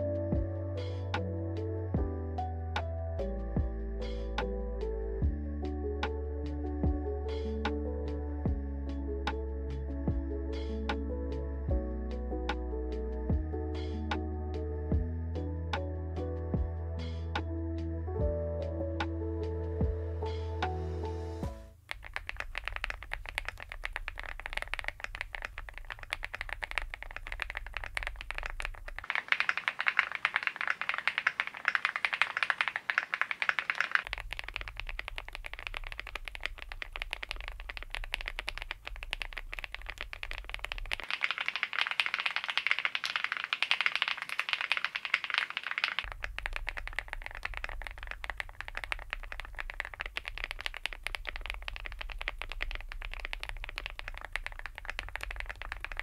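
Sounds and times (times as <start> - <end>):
fast typing on mechanical keyboard: 21.8 - 56.0.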